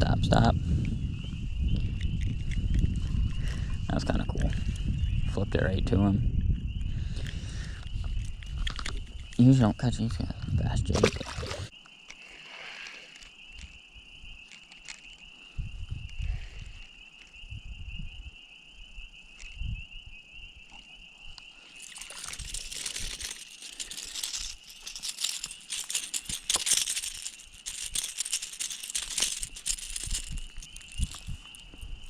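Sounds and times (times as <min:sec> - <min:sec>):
fish rattling and splashing: 0:11.0 - 0:11.7, 0:21.8 - 0:31.6.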